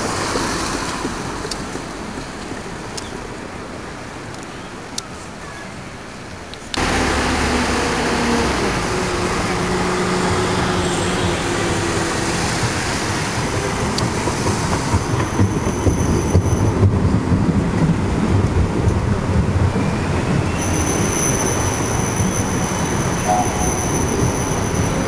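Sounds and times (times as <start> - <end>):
tram electric drive hum: 6.7 - 25.0
wheels clattering on rail: 6.7 - 25.0
faint high squeal: 19.7 - 25.0.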